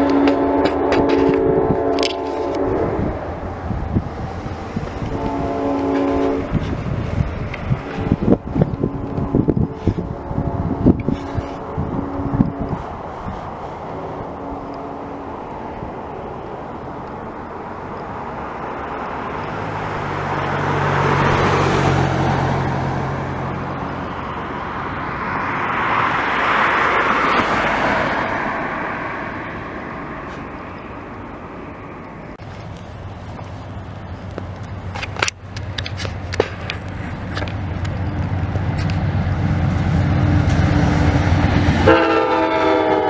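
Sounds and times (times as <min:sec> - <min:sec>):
vehicles driving past: 0:00.0 - 0:43.0.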